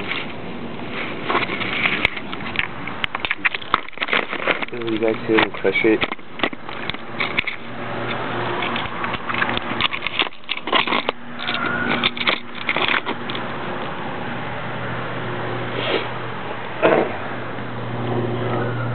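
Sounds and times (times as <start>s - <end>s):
scraping: 0.0s - 13.6s
steady low hum: 0.0s - 18.9s
lizard crunching bones: 1.0s - 14.0s.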